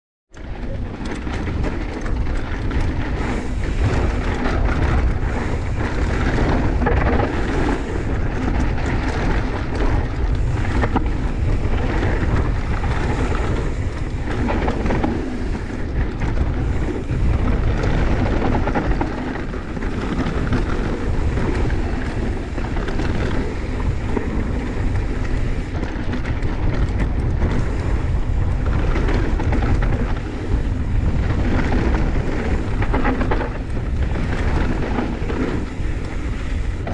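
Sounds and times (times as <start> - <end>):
wind buffeting microphone: 0.3 - 36.9
tyres rolling over dirt and stones: 0.4 - 36.9.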